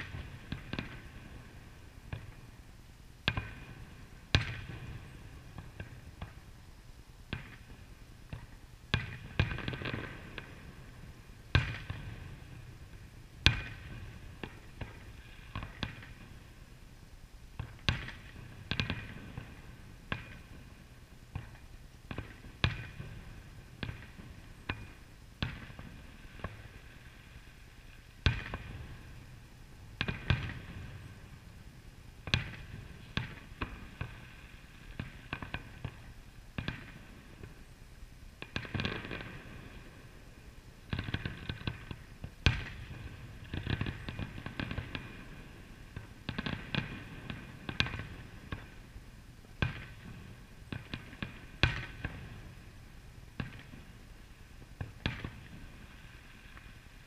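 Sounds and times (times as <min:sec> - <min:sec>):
rumble after fireworks: 0:00.0 - 0:57.0
fireworks bursting: 0:17.6 - 0:37.7, 0:38.4 - 0:40.2, 0:40.9 - 0:57.0.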